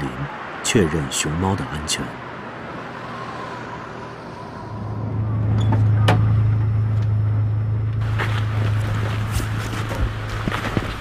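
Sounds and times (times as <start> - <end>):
van engine humming: 2.4 - 11.0.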